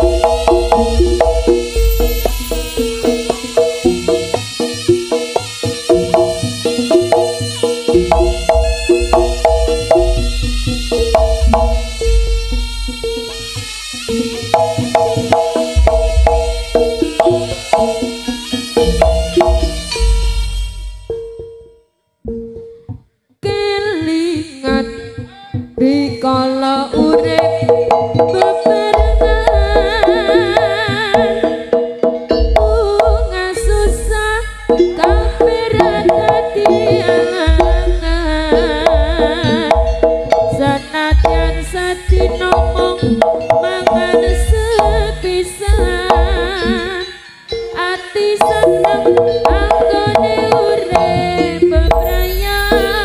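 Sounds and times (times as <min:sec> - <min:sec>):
drums: 0:00.0 - 0:21.4, 0:25.6 - 0:53.0
low bass thumps: 0:00.0 - 0:21.4, 0:29.0 - 0:30.6, 0:32.2 - 0:46.9, 0:50.9 - 0:53.0
traditional ensemble music: 0:00.0 - 0:21.4, 0:26.9 - 0:53.0
wavering melody with vibrato: 0:00.0 - 0:53.0
person singing: 0:23.4 - 0:31.8, 0:32.5 - 0:53.0.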